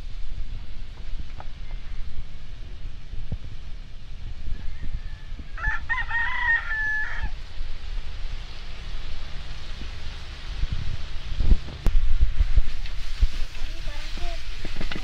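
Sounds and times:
rooster crowing: 0:04.4 - 0:07.5.

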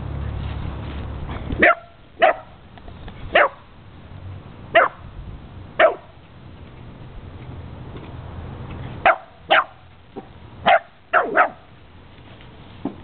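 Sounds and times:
dog barking: 0:01.6 - 0:02.6, 0:03.3 - 0:03.6, 0:04.7 - 0:05.0, 0:05.8 - 0:06.1, 0:09.0 - 0:09.8, 0:10.6 - 0:11.7.

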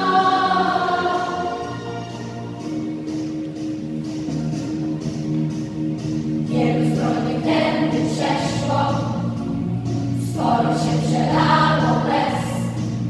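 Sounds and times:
children's choir singing: 0:00.0 - 0:02.5, 0:06.4 - 0:09.4, 0:10.2 - 0:13.0
instrumental accompaniment: 0:00.0 - 0:13.0.

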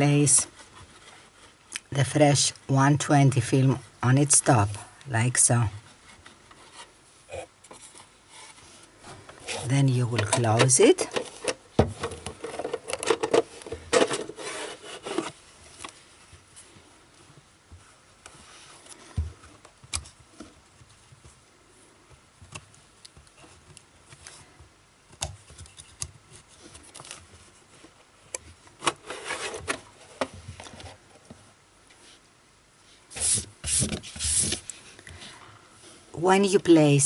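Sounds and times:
metal sliding into cardboard case: 0:07.8 - 0:15.4, 0:28.8 - 0:30.9.

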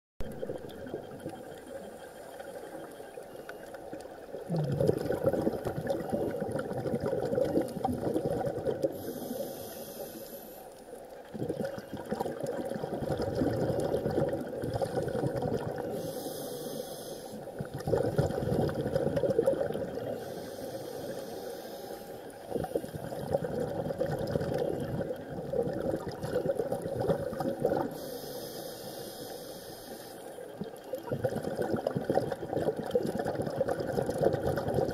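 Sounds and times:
bubbling surge: 0:00.2 - 0:01.9, 0:04.4 - 0:09.0, 0:11.3 - 0:16.0, 0:17.6 - 0:20.3, 0:22.5 - 0:28.0, 0:31.0 - 0:34.9
diver breathing on regulator: 0:08.8 - 0:10.8, 0:15.9 - 0:17.7, 0:19.9 - 0:23.2, 0:27.8 - 0:30.5.

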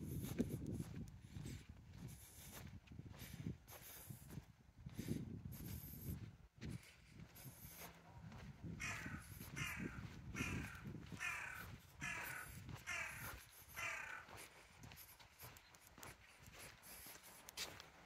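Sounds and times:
crow cawing: 0:08.8 - 0:14.5.

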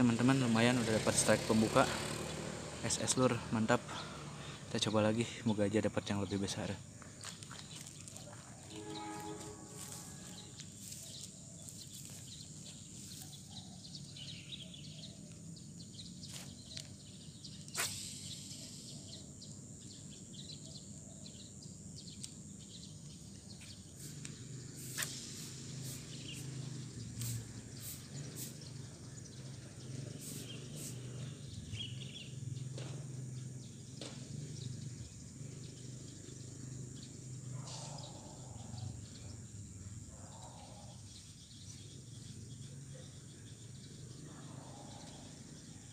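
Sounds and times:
low hum of city traffic: 0:00.0 - 0:45.9
short bird chirps: 0:17.6 - 0:19.3, 0:24.8 - 0:28.7
thin high hiss: 0:17.7 - 0:18.9, 0:23.9 - 0:26.6.

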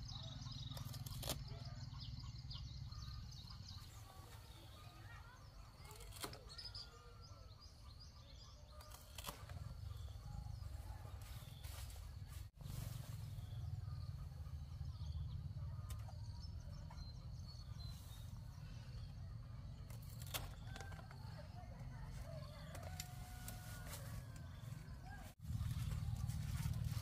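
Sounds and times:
steady low rumble: 0:24.6 - 0:27.0.

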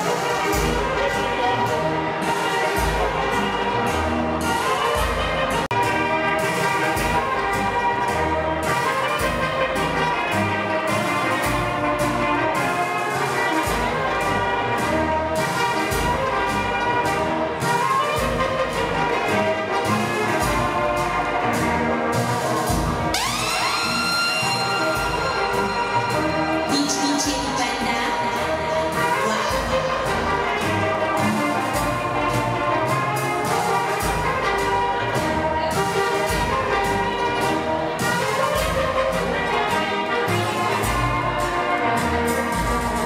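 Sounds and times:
brass horns playing: 0:00.0 - 0:43.0
bass line: 0:13.6 - 0:43.0.

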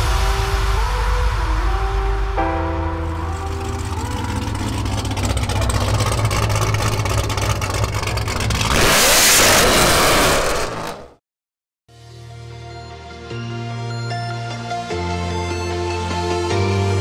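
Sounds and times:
car engine accelerating: 0:03.1 - 0:11.2.

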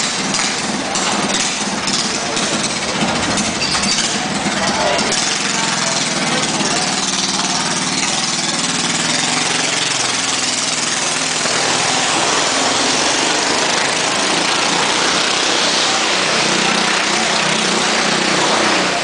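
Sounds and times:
go-kart engine revving hard: 0:00.0 - 0:19.0.

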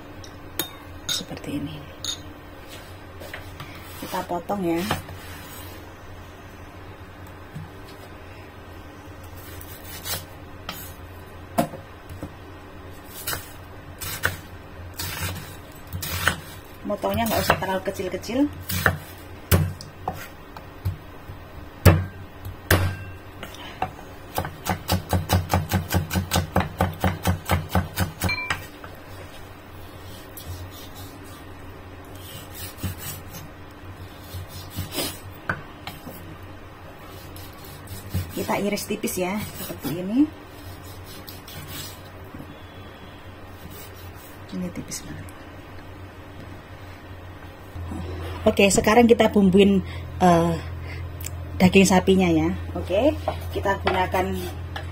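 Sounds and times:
knife chopping onion on wooden board: 0:15.0 - 0:17.8, 0:18.6 - 0:21.0, 0:24.3 - 0:28.7, 0:37.4 - 0:38.6.

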